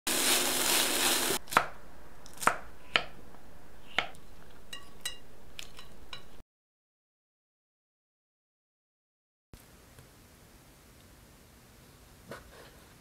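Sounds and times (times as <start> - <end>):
chicken sizzling in a frying pan: 0.1 - 1.4
utensil clinking on glass bowl: 4.7 - 6.4.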